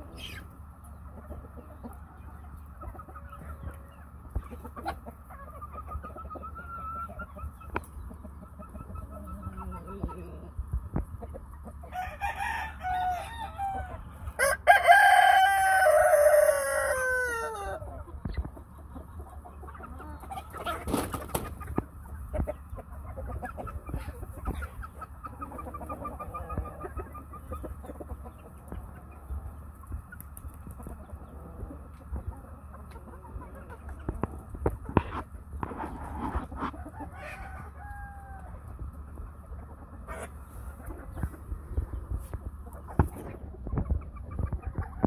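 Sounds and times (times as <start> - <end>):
chickens clucking: 0.0 - 45.0
rooster crowing: 11.9 - 17.9, 37.0 - 38.7.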